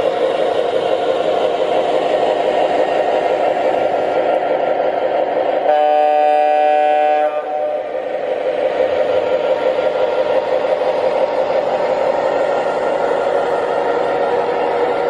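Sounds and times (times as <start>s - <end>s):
model train rumbling on track: 0.0s - 15.0s
model train horn: 5.7s - 7.9s.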